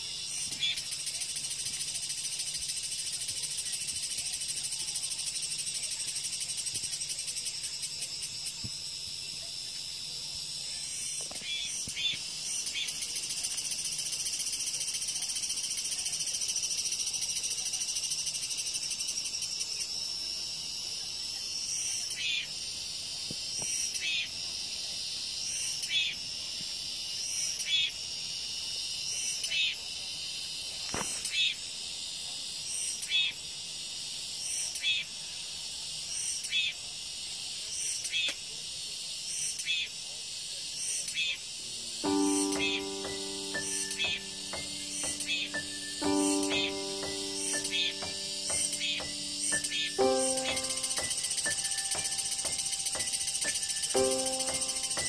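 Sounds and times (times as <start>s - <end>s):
cicadas buzzing: 0.0s - 34.6s, 40.4s - 55.0s
short sharp insect calls: 40.7s - 55.0s.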